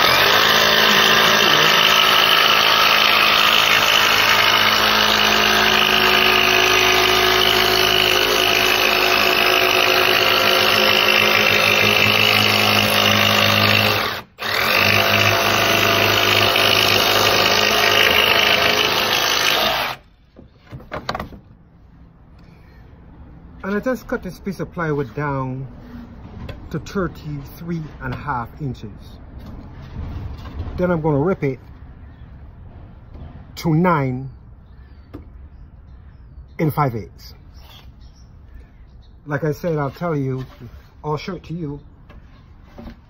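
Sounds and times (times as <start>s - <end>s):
electric power saw cutting plywood: 0.0s - 20.1s.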